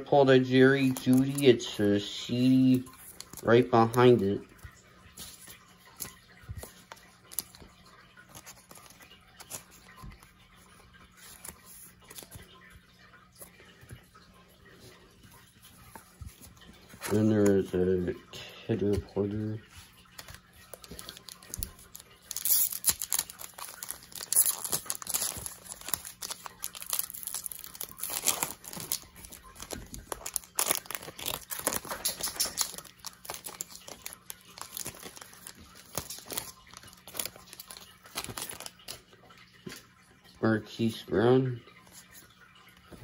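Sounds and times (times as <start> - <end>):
foil wrapper tearing and crinkling: 20.7 - 39.0.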